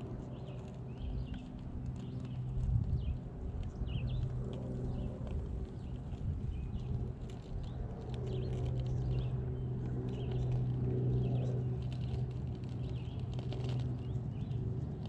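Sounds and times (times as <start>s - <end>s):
birds chirping: 0.0s - 7.0s, 7.6s - 14.7s.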